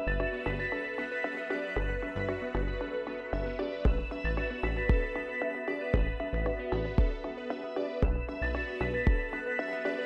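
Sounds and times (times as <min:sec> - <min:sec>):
low bass beat: 0:01.8 - 0:05.2, 0:06.0 - 0:07.2, 0:08.0 - 0:09.3.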